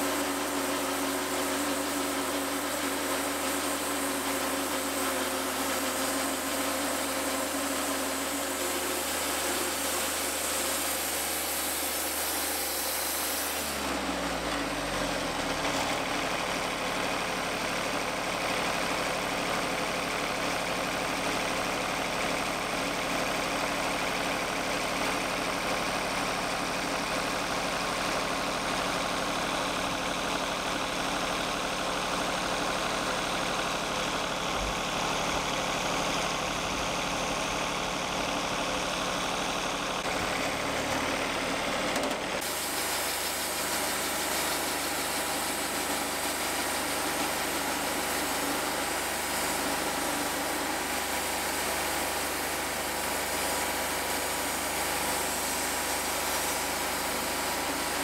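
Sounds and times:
bandsaw sawmill sawing wood: 0.0 - 58.0.

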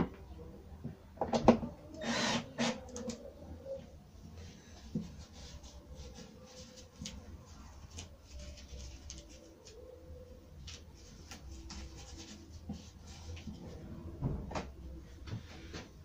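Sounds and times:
masking tape rustling: 2.0 - 13.7.

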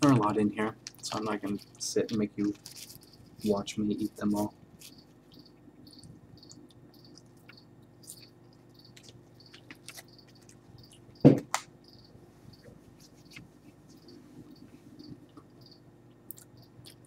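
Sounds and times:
plastic bag crinkling: 0.8 - 3.6
faint high chirps: 4.8 - 15.9.

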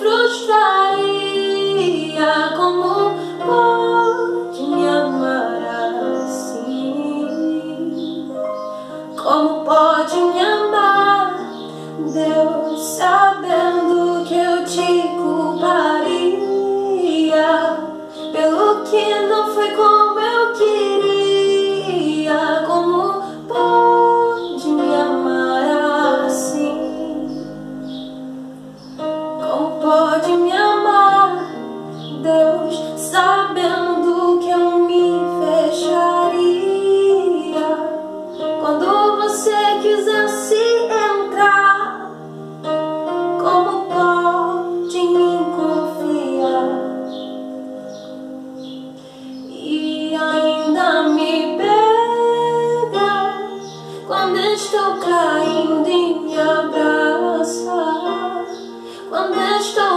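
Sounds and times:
woman singing worship song: 0.0 - 28.0, 29.2 - 42.4, 43.1 - 47.3, 48.6 - 59.9
instrumental backing: 0.0 - 59.9.

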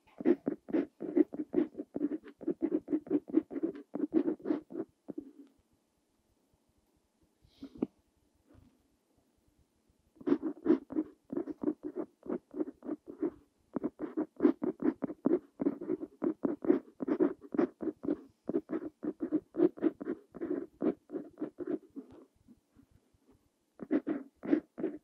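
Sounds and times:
pen nib scratching on paper: 0.0 - 5.5, 10.2 - 22.3, 23.8 - 25.0.

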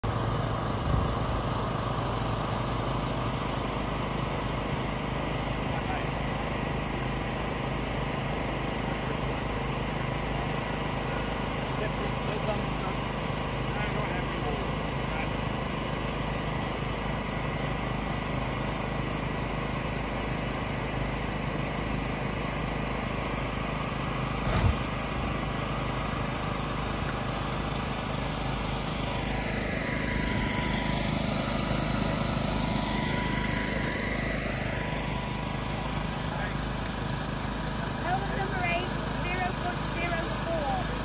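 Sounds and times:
air blower humming: 0.0 - 41.0
thud of landing on pad: 24.4 - 24.9.

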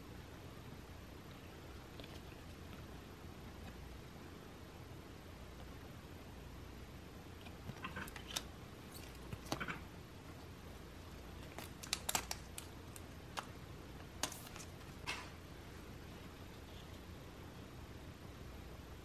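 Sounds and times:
hands handling packaging: 11.1 - 15.3.

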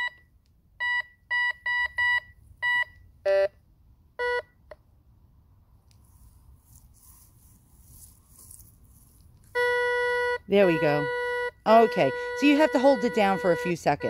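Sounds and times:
metal detector beeping: 0.0 - 3.6, 9.5 - 14.0.

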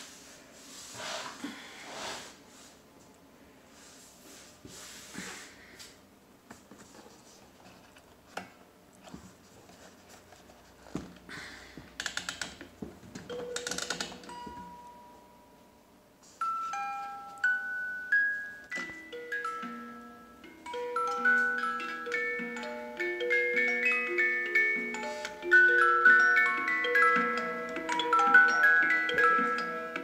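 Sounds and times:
music box notes: 13.3 - 15.7, 16.4 - 30.0.

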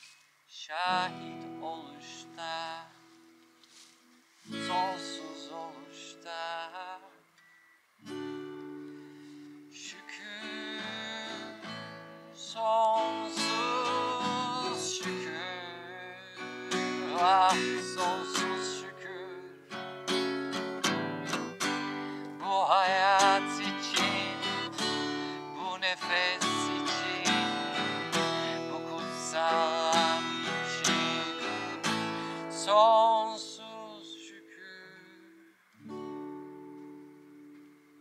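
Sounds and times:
man singing: 0.5 - 3.1, 4.5 - 7.2, 9.7 - 19.7, 22.1 - 35.5
acoustic guitar strumming: 0.6 - 38.0.

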